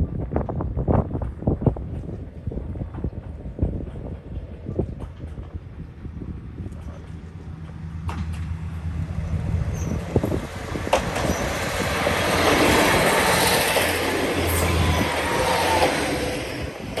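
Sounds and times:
diesel engine hum: 6.2 - 17.0
wheels clicking over rail joints: 6.6 - 17.0
wheels rolling on rails: 6.6 - 17.0.

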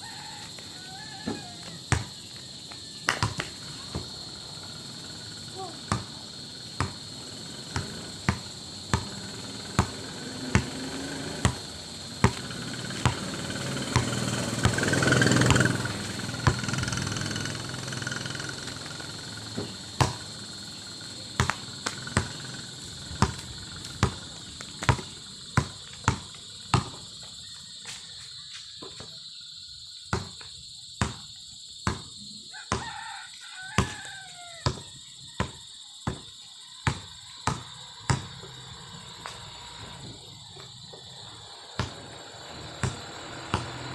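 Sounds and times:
rooster crowing: 0.0 - 2.2, 32.5 - 35.7
crickets chirping: 0.0 - 43.9
basketball bouncing on asphalt: 0.1 - 4.4, 5.8 - 17.1, 18.8 - 27.6, 30.1 - 39.5, 40.5 - 43.8
vehicle passing: 7.0 - 24.6, 38.2 - 40.4, 41.1 - 43.9.

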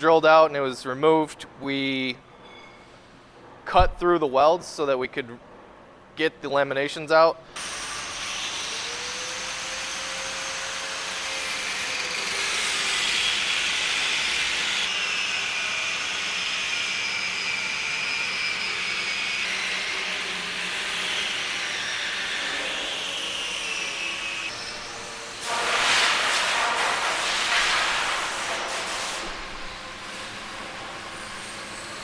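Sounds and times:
angle grinder cutting steel: 7.6 - 26.2.

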